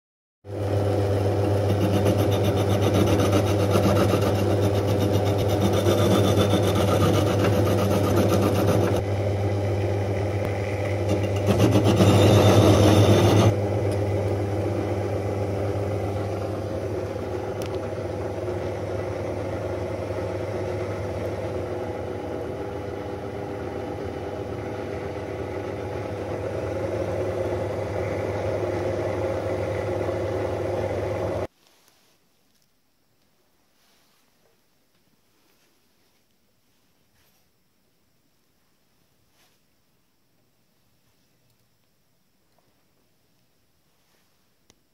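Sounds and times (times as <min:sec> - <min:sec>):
drill press running: 0:00.5 - 0:31.5
bit scraping metal: 0:01.6 - 0:09.0, 0:10.9 - 0:13.6.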